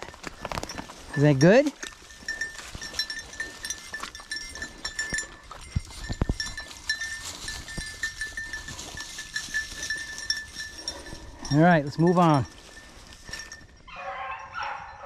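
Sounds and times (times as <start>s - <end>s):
dogs drinking and wading: 0.0s - 15.0s
faint high tinkling: 0.0s - 15.0s.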